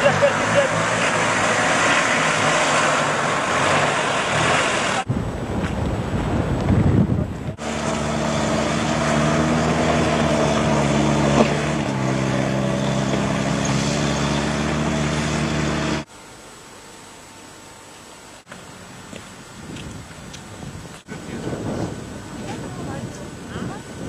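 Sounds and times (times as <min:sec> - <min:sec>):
engine droning under load: 0:00.0 - 0:24.0
wind noise: 0:01.8 - 0:07.7, 0:19.0 - 0:24.0.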